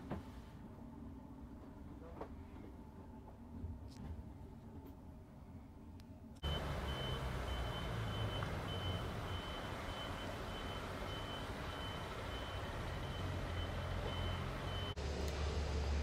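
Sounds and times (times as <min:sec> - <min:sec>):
reversing alarm beeping: 0:06.4 - 0:15.0
diesel engine rumbling: 0:06.4 - 0:16.0.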